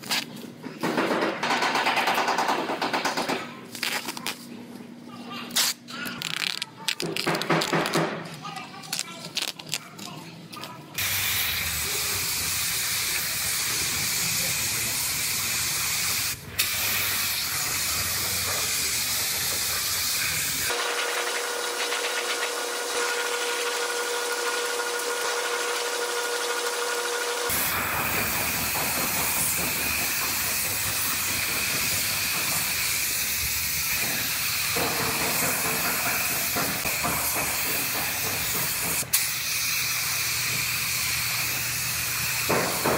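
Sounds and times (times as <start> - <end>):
paint spray gun hissing: 11.0 - 22.4.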